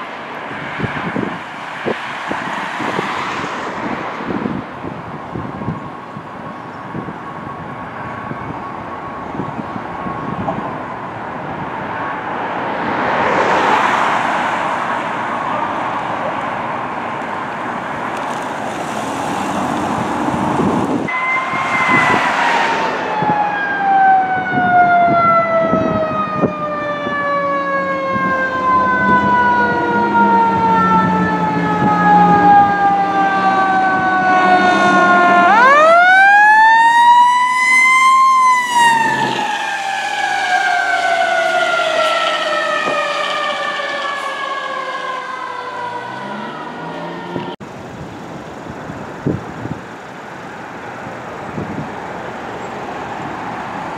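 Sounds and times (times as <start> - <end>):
fire engine siren: 0.0 - 47.7
passing traffic rush: 0.0 - 53.9
truck engine rumbling: 16.5 - 52.6.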